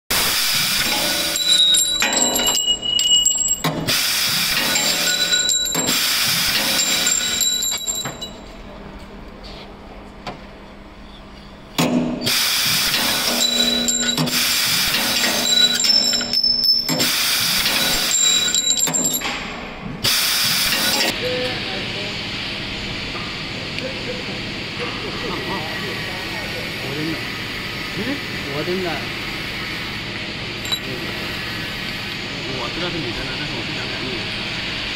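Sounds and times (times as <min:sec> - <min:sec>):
cutting gas hissing: 0:00.1 - 0:01.5, 0:03.8 - 0:07.2, 0:12.2 - 0:18.6, 0:20.0 - 0:21.1
motors whining: 0:12.4 - 0:19.3.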